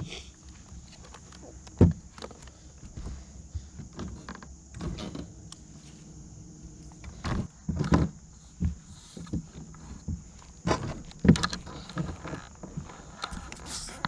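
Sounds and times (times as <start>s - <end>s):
knocks and thumps on boat deck: 1.8s - 5.3s, 7.1s - 13.5s.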